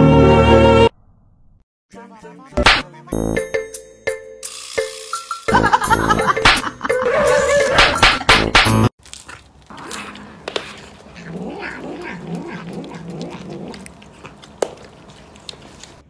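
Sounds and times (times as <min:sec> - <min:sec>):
laughter: 0:05.5 - 0:08.3
cat yowling: 0:07.0 - 0:08.0, 0:09.8 - 0:14.3.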